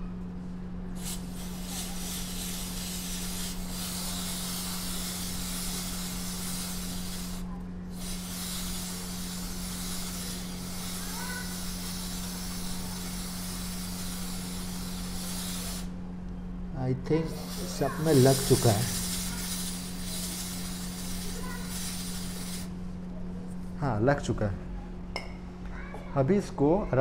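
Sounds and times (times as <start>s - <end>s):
aerosol spray hissing: 0.9s - 16.0s, 17.2s - 22.8s.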